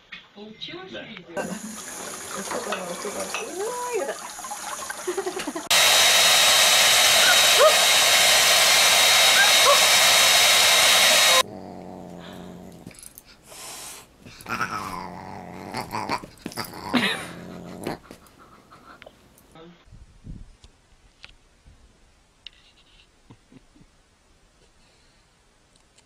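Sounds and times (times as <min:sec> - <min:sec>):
water running from tap: 0:01.4 - 0:07.2
hair dryer hiss and whine: 0:05.6 - 0:11.4
dog and cat play-fighting: 0:11.3 - 0:19.5.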